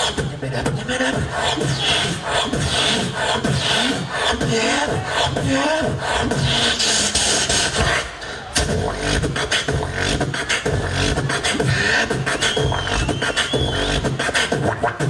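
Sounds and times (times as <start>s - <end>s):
beatboxing through speakers: 0.0s - 15.0s
wavering high whistle tone: 12.2s - 14.1s.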